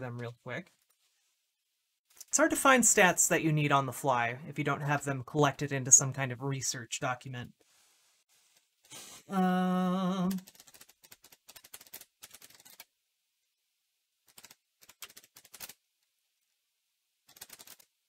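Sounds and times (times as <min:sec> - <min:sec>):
person humming: 0:09.0 - 0:10.4
computer keyboard typing: 0:10.3 - 0:12.8, 0:14.3 - 0:15.7, 0:17.3 - 0:17.8.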